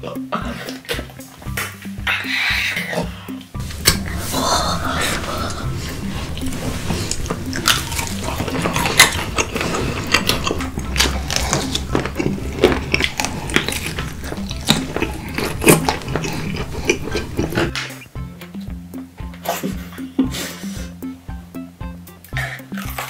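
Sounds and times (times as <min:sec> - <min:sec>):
person chewing crunchy food: 0:03.6 - 0:18.0, 0:22.4 - 0:23.0.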